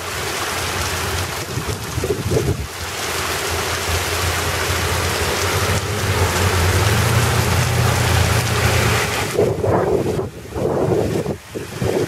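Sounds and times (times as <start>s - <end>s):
heavy rain pouring: 0.0s - 12.0s
low rumble: 0.9s - 10.3s.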